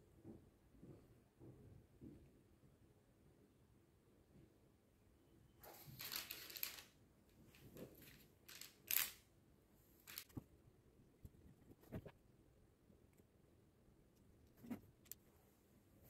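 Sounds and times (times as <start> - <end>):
baking paper rustling: 5.7 - 6.8.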